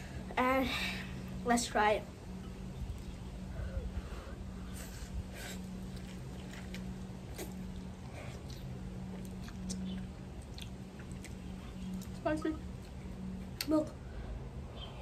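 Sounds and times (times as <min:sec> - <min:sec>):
steady low hum: 0:00.0 - 0:15.0
child chewing and slurping: 0:03.5 - 0:12.2.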